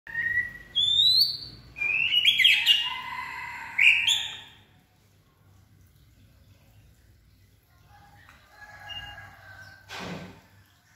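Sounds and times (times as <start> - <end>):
bird singing whistled phrases: 0.1 - 2.8.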